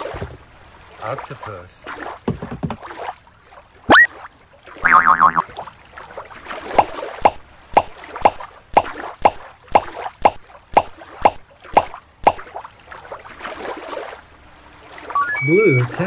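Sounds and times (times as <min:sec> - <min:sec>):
water plops: 0:03.9 - 0:12.7.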